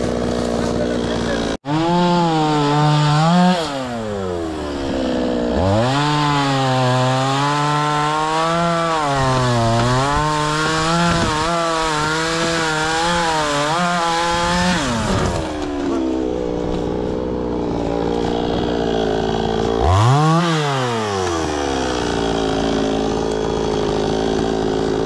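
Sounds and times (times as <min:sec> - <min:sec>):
chainsaw cutting into tree: 0:00.0 - 0:25.0.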